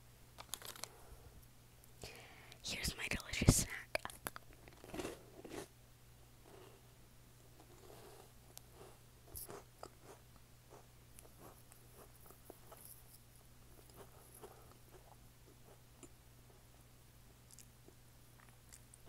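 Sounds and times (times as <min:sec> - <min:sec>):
low steady hum: 0:00.0 - 0:19.0
chewing crunchy snack: 0:04.0 - 0:05.7, 0:17.4 - 0:19.0.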